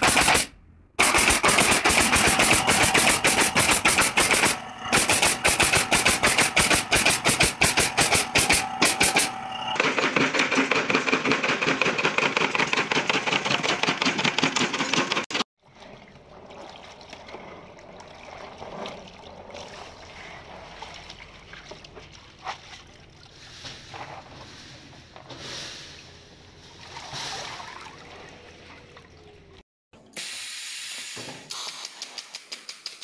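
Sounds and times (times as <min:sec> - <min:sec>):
nail gun firing into wood: 0:00.0 - 0:15.4
water sloshing in plastic tub: 0:15.6 - 0:24.4, 0:26.6 - 0:29.6.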